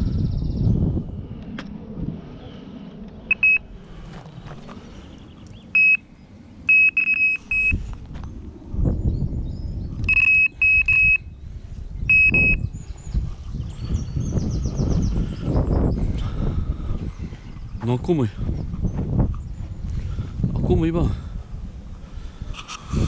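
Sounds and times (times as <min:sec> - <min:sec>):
low rumbling background: 0:00.0 - 0:23.0
high electronic beeps: 0:03.3 - 0:03.6, 0:05.8 - 0:06.0, 0:06.7 - 0:07.8, 0:10.1 - 0:11.2, 0:12.1 - 0:12.6.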